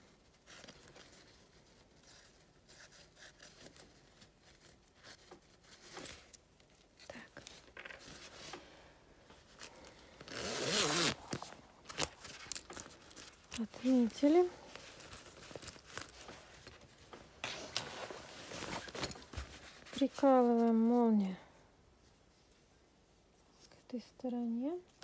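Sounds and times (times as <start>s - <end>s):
fabric rustling: 0.0s - 23.7s
zipper being zipped: 10.2s - 12.1s.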